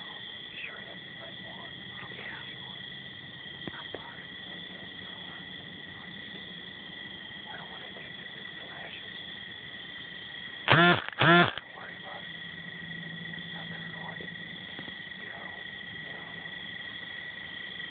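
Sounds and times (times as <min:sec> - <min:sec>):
crickets trilling: 0:00.0 - 0:17.9.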